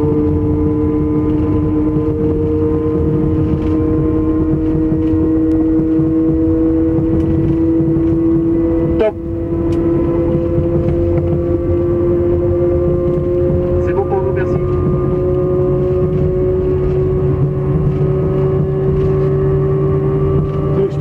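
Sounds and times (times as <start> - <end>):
humming tones rising in pitch: 0.0 - 21.0.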